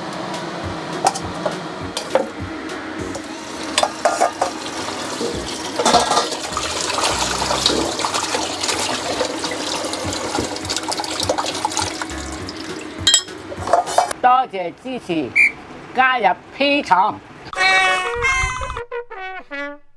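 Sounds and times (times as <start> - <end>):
tap running into basin: 3.1 - 14.1.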